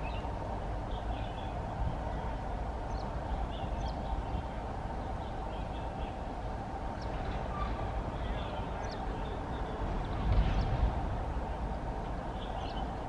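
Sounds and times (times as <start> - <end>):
distant train rumbling: 0.0 - 13.0
small birds chirping: 0.9 - 6.3, 7.0 - 9.9.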